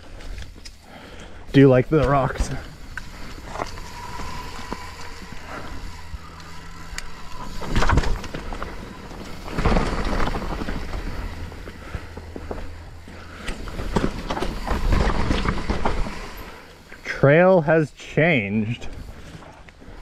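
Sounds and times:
bike clattering over rock: 7.4 - 16.7.

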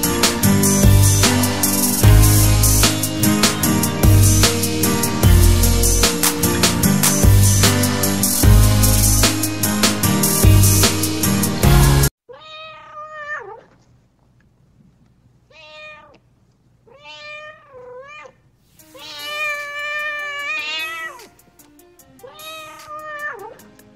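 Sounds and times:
music notes: 0.0 - 12.1
cat meowing: 12.3 - 13.7, 15.5 - 16.2, 16.9 - 21.4, 22.2 - 23.6.

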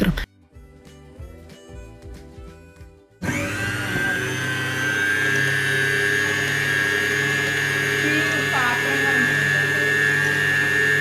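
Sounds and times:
stand mixer motor whining: 3.2 - 11.0.

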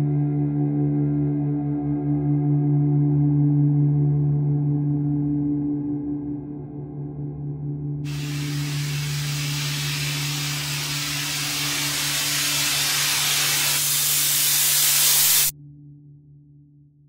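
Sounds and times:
steady low drone: 6.2 - 15.5
loud white noise hiss: 8.1 - 15.5.

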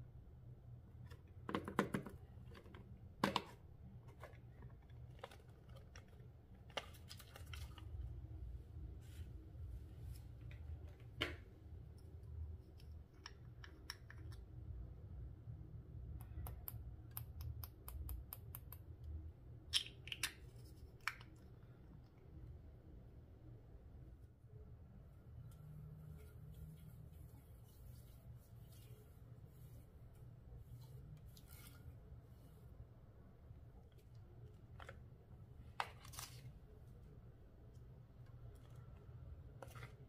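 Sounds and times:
low steady hum: 0.0 - 40.0.

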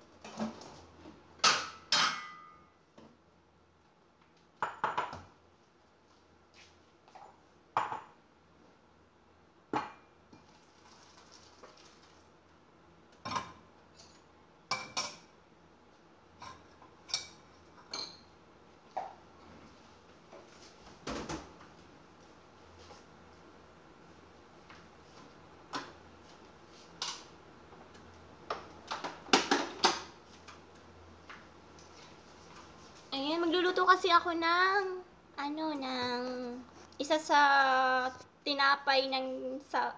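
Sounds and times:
dishes clinking and knocking: 1.4 - 2.7, 4.6 - 5.3, 14.7 - 15.3.

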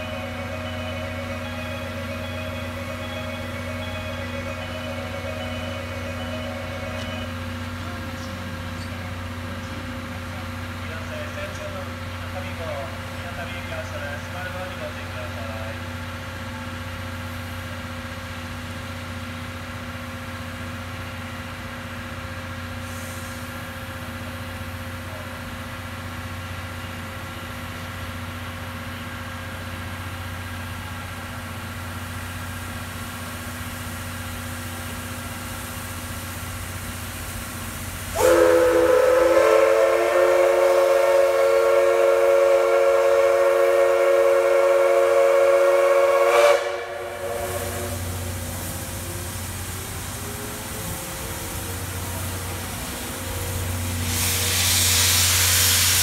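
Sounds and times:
steam whistle blast: 0.0 - 7.4, 38.1 - 48.3, 53.9 - 56.0.

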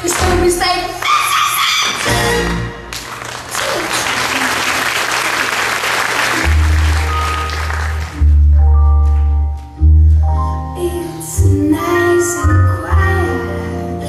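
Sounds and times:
audience applauding: 0.0 - 8.4
music over speakers: 6.4 - 14.0.

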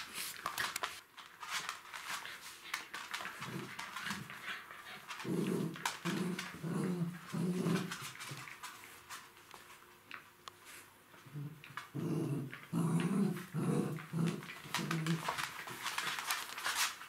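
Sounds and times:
claws scrabbling on floor: 0.0 - 10.2, 11.6 - 17.0
dog play growls: 3.3 - 8.5, 11.2 - 15.6.

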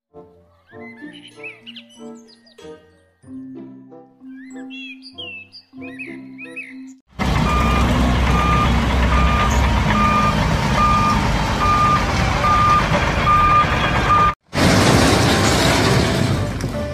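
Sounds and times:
truck engine running: 7.1 - 16.9
reversing alarm beeping: 7.4 - 14.4
loud rushing noise: 10.1 - 16.9.

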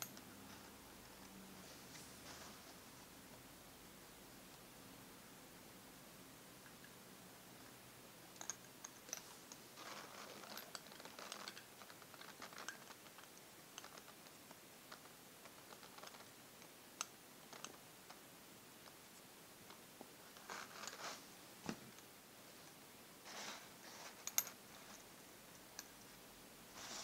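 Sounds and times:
light rustle: 9.0 - 16.3, 19.6 - 22.0, 26.7 - 27.0.

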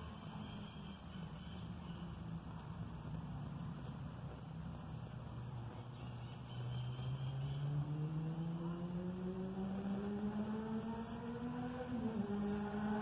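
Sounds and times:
vehicle engine accelerating: 3.0 - 13.0.

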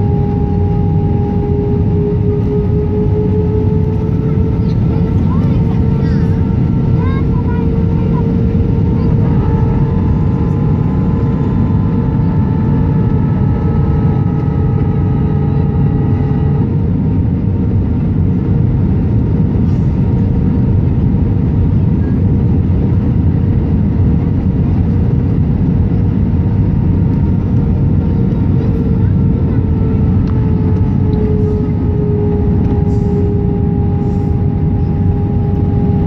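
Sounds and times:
faint high whine: 0.0 - 16.9, 28.2 - 36.0
airplane cabin roar: 0.0 - 36.0
steady hum: 0.0 - 36.0.

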